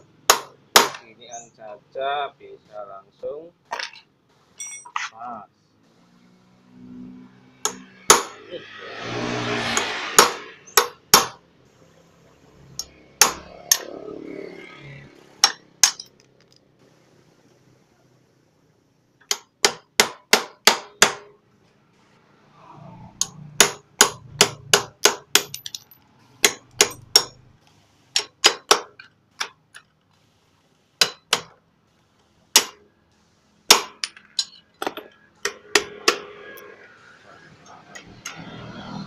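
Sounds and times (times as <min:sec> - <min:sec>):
hammer striking metal chisel: 0:00.3 - 0:01.0, 0:07.6 - 0:08.4, 0:09.8 - 0:11.4, 0:12.8 - 0:13.9, 0:15.4 - 0:16.1, 0:19.2 - 0:21.3, 0:23.2 - 0:27.4, 0:28.2 - 0:29.6, 0:31.0 - 0:31.6, 0:32.5 - 0:32.8, 0:33.7 - 0:36.5.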